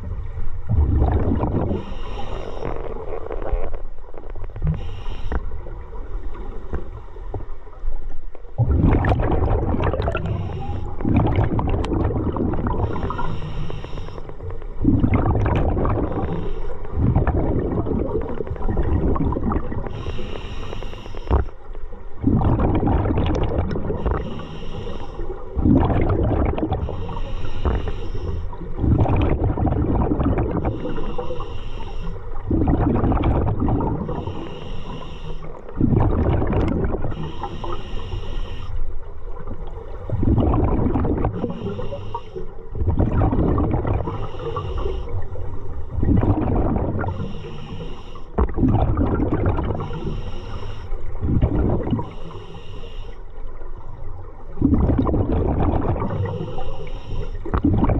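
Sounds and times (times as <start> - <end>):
diver breathing through regulator: 1.5 - 3.8, 4.6 - 7.2, 10.0 - 14.8, 15.9 - 18.6, 19.6 - 21.6, 23.8 - 25.6, 26.5 - 29.3, 30.6 - 32.6, 33.9 - 36.0, 37.0 - 39.1, 41.0 - 42.7, 43.9 - 45.8, 46.6 - 48.6, 49.6 - 53.4, 55.9 - 57.8.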